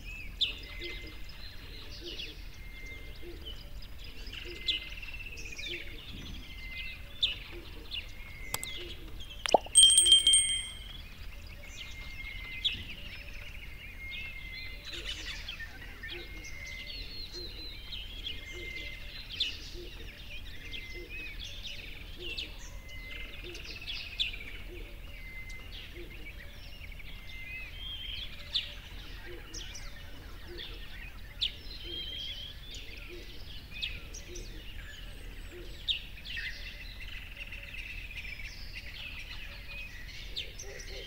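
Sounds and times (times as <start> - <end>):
songbirds chirping: 0.0 - 41.0
bell-like ding: 9.5 - 11.0.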